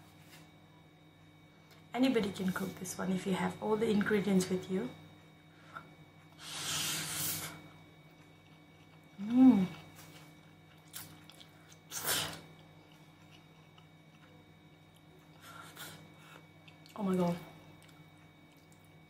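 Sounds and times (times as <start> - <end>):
person slurping noodles: 6.4 - 7.6, 11.9 - 12.4.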